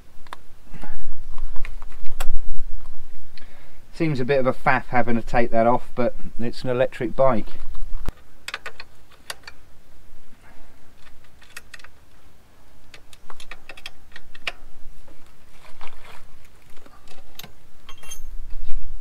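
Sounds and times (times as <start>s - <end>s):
metallic clicks and knocks: 8.1s - 9.6s, 12.9s - 14.7s, 17.0s - 18.6s
metallic ring: 17.9s - 18.4s.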